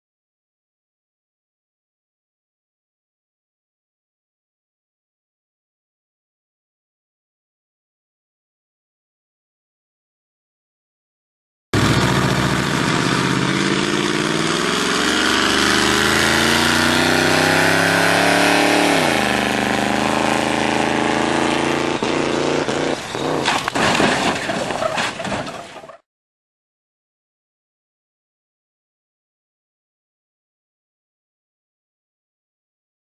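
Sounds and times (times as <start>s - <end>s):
vehicle engine accelerating: 11.8s - 23.8s
car crashing into guardrail: 23.4s - 26.0s.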